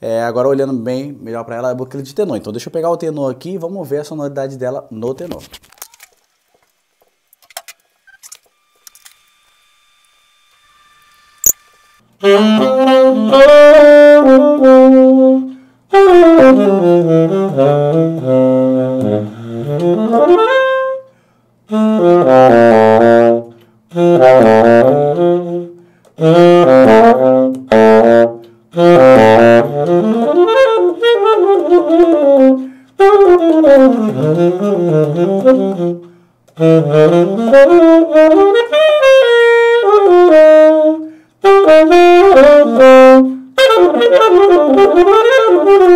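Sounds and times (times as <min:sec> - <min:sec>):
tenor saxophone solo: 0:12.2 - 0:45.9
player breathing: 0:15.5 - 0:15.9, 0:21.1 - 0:21.6, 0:25.8 - 0:26.2, 0:32.6 - 0:33.0, 0:36.0 - 0:36.5, 0:41.0 - 0:41.4.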